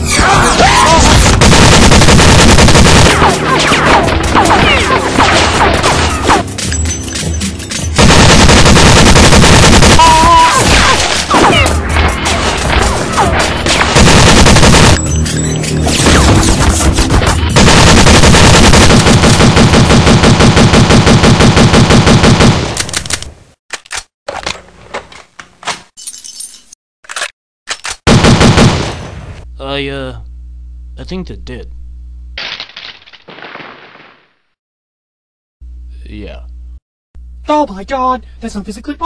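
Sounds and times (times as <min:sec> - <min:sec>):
automatic gunfire: 0:01.4 - 0:03.3, 0:08.0 - 0:10.4, 0:13.9 - 0:15.0, 0:17.6 - 0:22.7.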